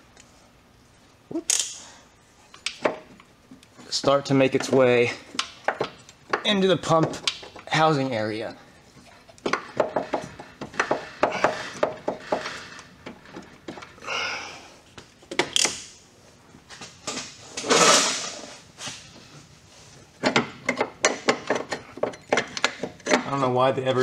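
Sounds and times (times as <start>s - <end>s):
metal clicks knocks and scraping: 2.5s - 8.1s, 9.0s - 14.0s, 20.2s - 23.4s.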